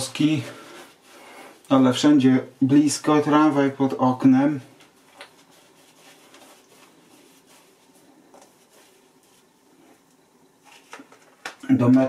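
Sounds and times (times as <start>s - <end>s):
shaving brush swishing: 5.2s - 10.0s.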